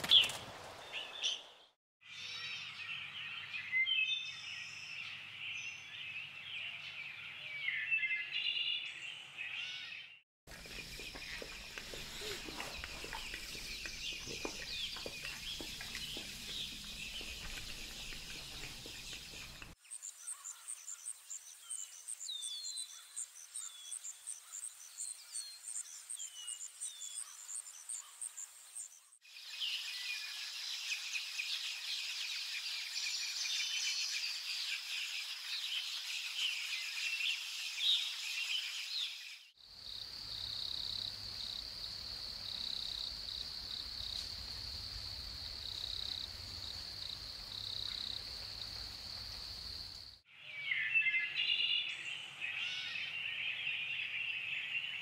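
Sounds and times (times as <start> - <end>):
birds chirping: 0.0 - 39.2
insects buzzing: 10.5 - 20.6.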